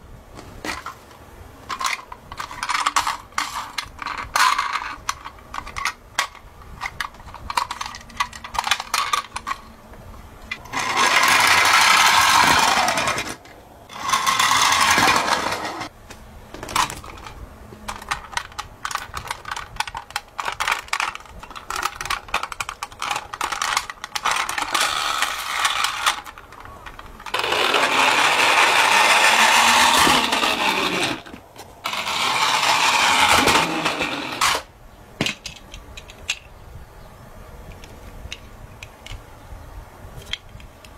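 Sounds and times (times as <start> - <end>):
plastic toy clicking and rattling: 1.6 - 9.7, 10.5 - 15.9, 16.6 - 36.5, 37.7 - 39.2
toy wheels whirring: 1.6 - 9.8, 10.5 - 15.9, 16.6 - 34.7.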